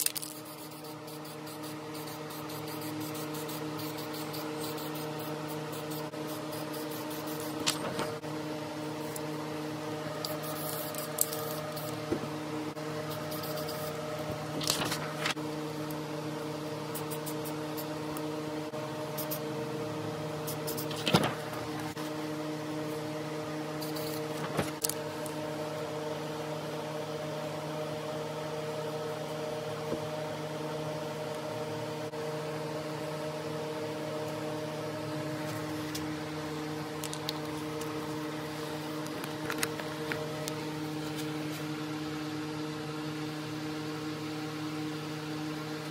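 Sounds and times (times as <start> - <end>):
machine hum with held tones: 0.0 - 45.9
paper rustling and clicking: 14.6 - 15.4.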